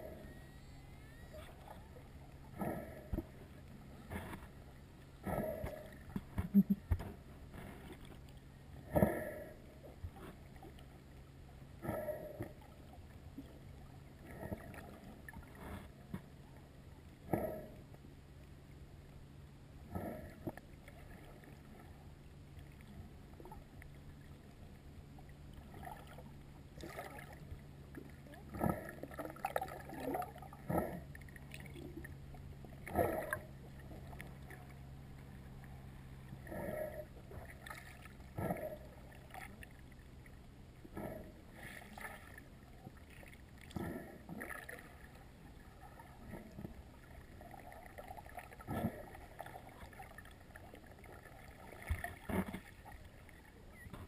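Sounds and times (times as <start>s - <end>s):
steady low hum: 0.0s - 54.0s
bubbles: 25.6s - 27.4s.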